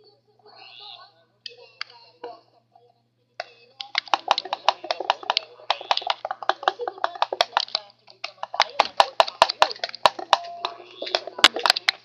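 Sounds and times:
utensil clicking in plastic bowl: 3.8s - 12.0s.

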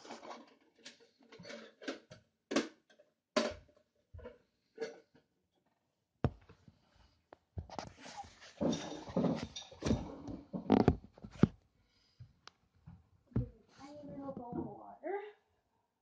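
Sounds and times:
camera handling rustles and knocks: 7.6s - 11.6s.

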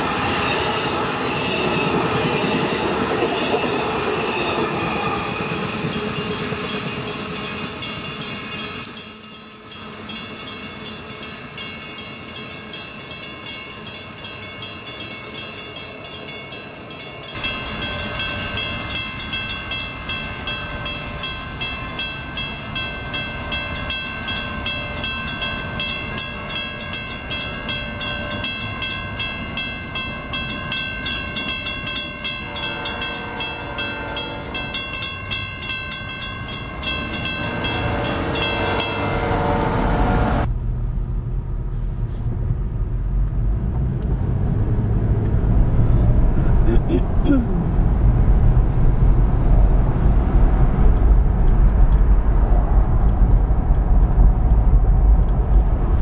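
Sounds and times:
train wheels clickety-clack: 0.2s - 40.2s
rapid ringing with held tones: 5.2s - 39.3s.

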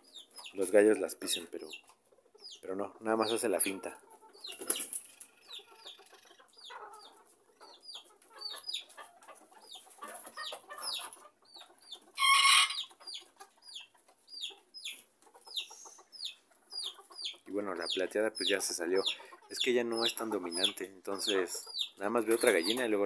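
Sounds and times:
chickens clucking: 0.0s - 23.0s
chicken squawk: 5.3s - 17.5s.

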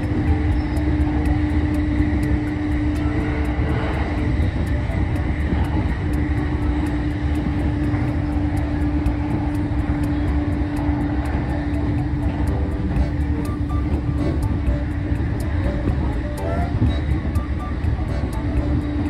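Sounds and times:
train motor hum: 0.0s - 19.0s
train wheels rumbling on rail: 0.0s - 19.0s.

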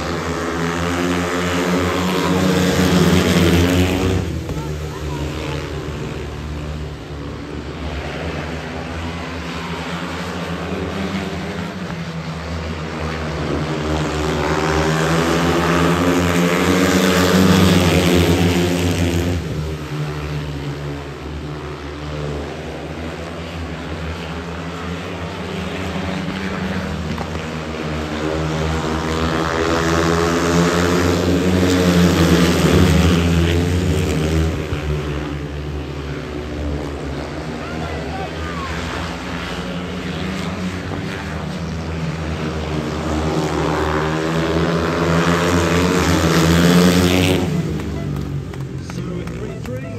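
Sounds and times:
motorbike engines racing: 0.0s - 49.9s.

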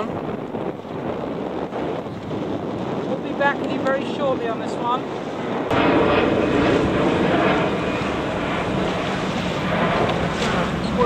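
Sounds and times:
wind buffeting microphone: 0.0s - 11.0s
water sloshing: 6.6s - 11.0s.

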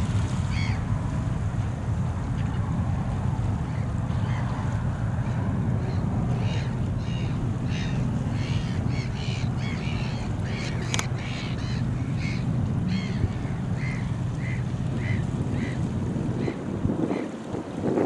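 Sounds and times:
distant jet rumble: 0.0s - 17.9s
birds calling: 5.8s - 17.3s.

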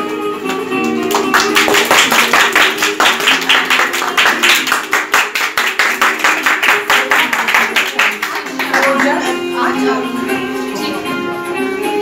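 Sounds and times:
music with steady melody: 0.0s - 12.0s
people clapping in time: 0.4s - 9.5s.

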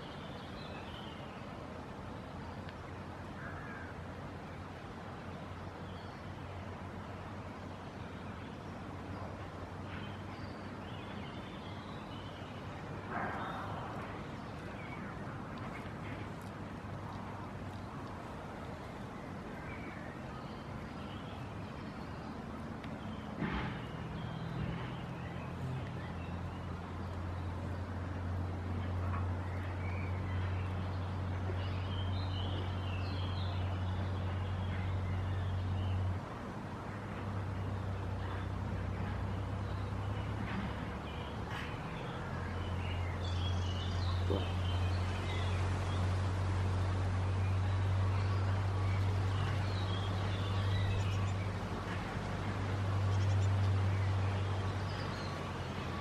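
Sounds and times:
small birds chirping: 37.0s - 56.0s.

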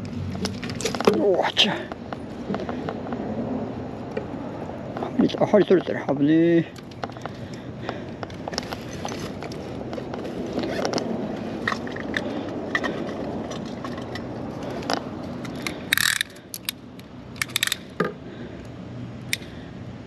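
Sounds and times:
handling rustle with clicks: 0.3s - 1.3s, 6.7s - 18.0s.

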